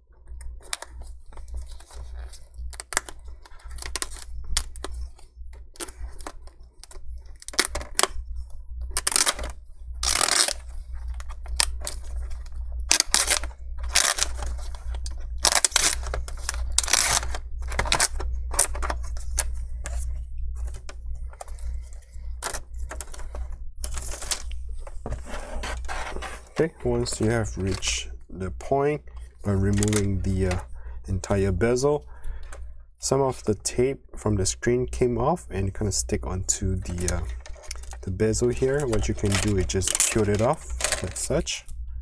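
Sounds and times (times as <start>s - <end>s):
steady low hum: 0.0s - 42.0s
adhesive tape scraping and peeling: 9.0s - 12.1s, 12.8s - 20.0s.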